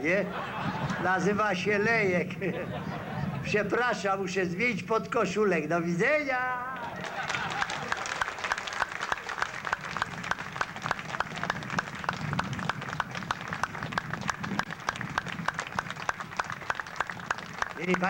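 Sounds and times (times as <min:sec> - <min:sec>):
audience applauding: 0:06.7 - 0:18.0.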